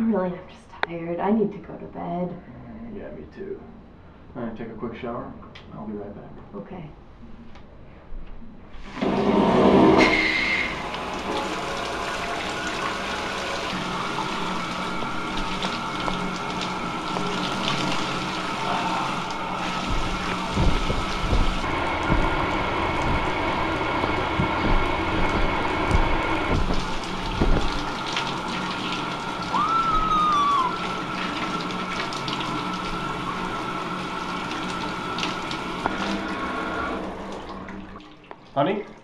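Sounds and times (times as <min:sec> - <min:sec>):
shower water spraying: 0:08.8 - 0:37.6.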